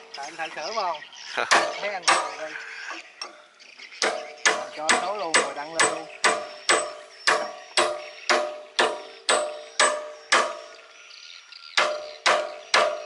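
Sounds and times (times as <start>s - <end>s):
hammer blows ringing on steel: 1.5s - 2.4s, 4.0s - 10.8s, 11.8s - 13.0s.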